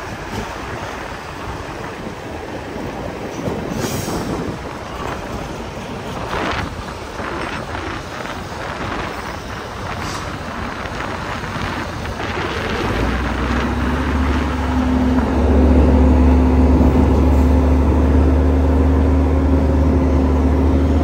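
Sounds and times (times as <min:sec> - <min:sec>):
heavy diesel machinery rumbling: 0:00.0 - 0:21.0.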